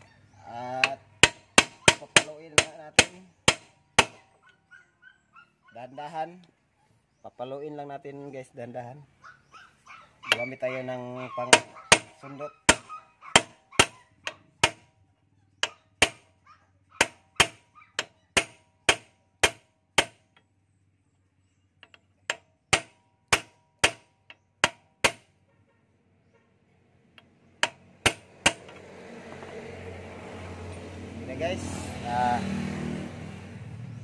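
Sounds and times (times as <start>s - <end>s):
hammer tapping metal punch: 0.8s - 4.2s, 17.0s - 20.5s, 21.8s - 25.3s, 27.2s - 28.8s.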